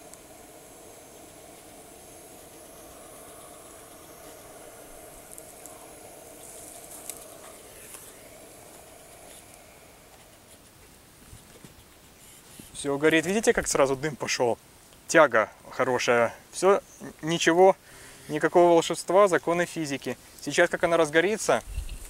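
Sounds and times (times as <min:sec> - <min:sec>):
jet lighter hissing: 0:00.0 - 0:10.8
kindling crackling: 0:00.0 - 0:15.0.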